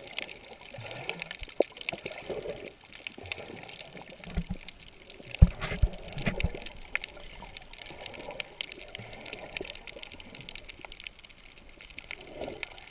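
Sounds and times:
underwater clicks and crackles: 0:00.0 - 0:12.9
low underwater thumps: 0:05.4 - 0:06.6.

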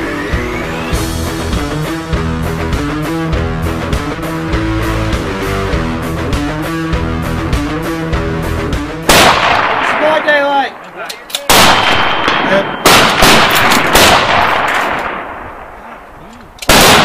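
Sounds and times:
background music: 0:00.0 - 0:10.2
rifle shots with echo: 0:09.0 - 0:17.0.

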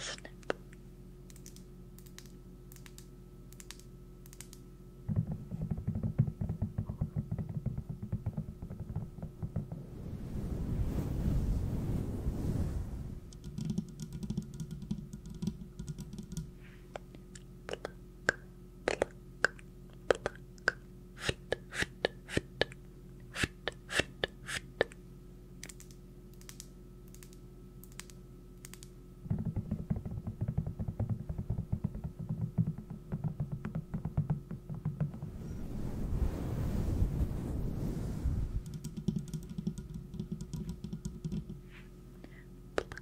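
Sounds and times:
faint steady hum: 0:00.0 - 0:43.0
sharp irregular clicks and taps: 0:01.3 - 0:09.5, 0:13.3 - 0:16.5, 0:25.6 - 0:35.0, 0:38.6 - 0:41.6
soft low rushing noise: 0:09.7 - 0:13.3, 0:35.2 - 0:38.6.

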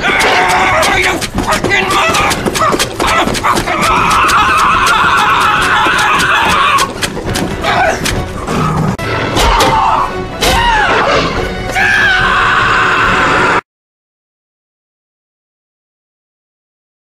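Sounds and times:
man screaming: 0:00.0 - 0:07.0, 0:09.4 - 0:13.6
soundtrack music: 0:00.0 - 0:13.6.

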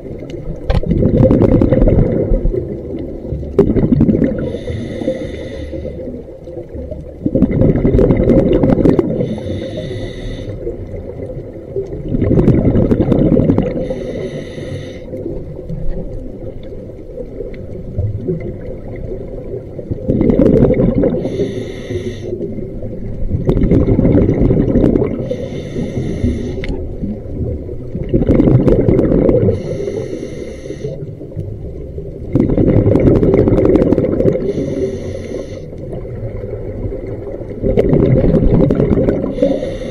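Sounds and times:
exhaled bubbles rumbling underwater: 0:00.0 - 0:39.9
air hissing through regulator: 0:04.4 - 0:06.0, 0:09.2 - 0:10.7, 0:13.8 - 0:15.1, 0:21.2 - 0:22.4, 0:25.2 - 0:26.8, 0:29.5 - 0:31.1, 0:34.4 - 0:35.8, 0:39.3 - 0:39.9.

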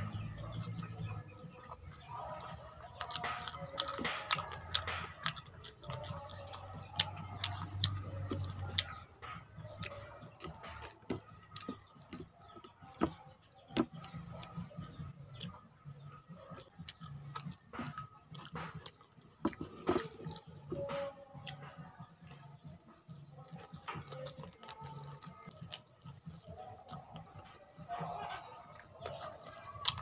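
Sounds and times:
chewing and sucking: 0:02.9 - 0:22.5.

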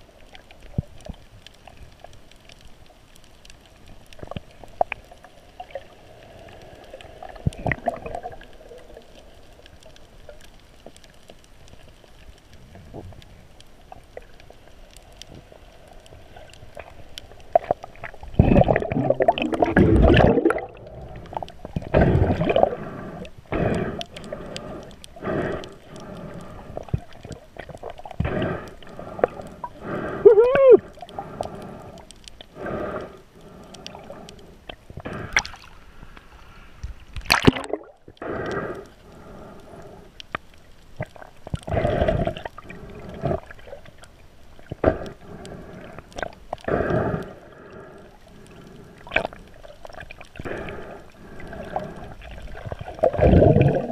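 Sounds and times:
muffled underwater wash: 0:00.0 - 0:53.9
bubbling and gurgling: 0:04.0 - 0:11.1, 0:16.3 - 0:35.8, 0:37.1 - 0:38.9, 0:41.0 - 0:53.9.

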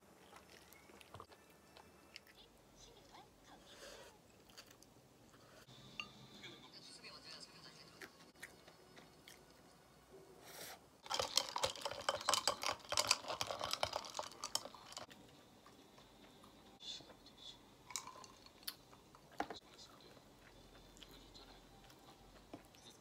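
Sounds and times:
person gulping a drink: 0:11.0 - 0:15.0, 0:17.9 - 0:18.8
crackly eating clicks: 0:11.0 - 0:16.4.

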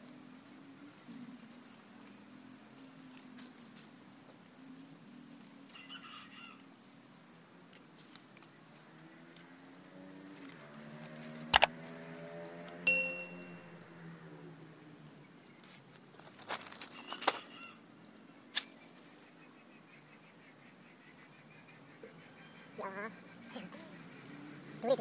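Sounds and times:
sharp click: 0:11.5 - 0:11.7
brief chirp: 0:12.9 - 0:13.8
short metallic ding: 0:12.9 - 0:13.8.

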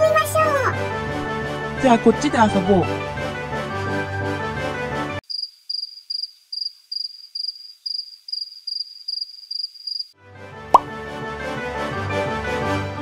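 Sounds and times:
background music: 0:00.0 - 0:05.2, 0:10.2 - 0:13.0
cricket chirp sound effect: 0:05.2 - 0:10.2.

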